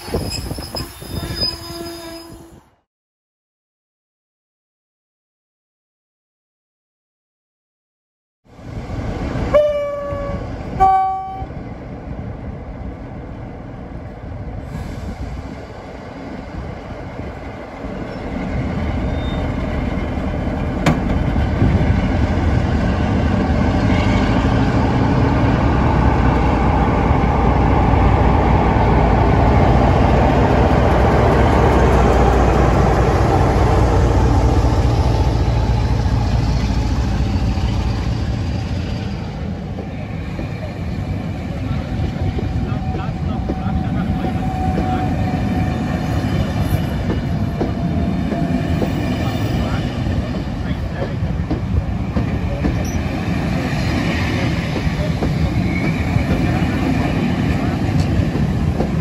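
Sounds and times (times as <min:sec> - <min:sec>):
train running gear rumbling: 0:08.6 - 0:59.0
two-tone locomotive horn: 0:09.5 - 0:11.5.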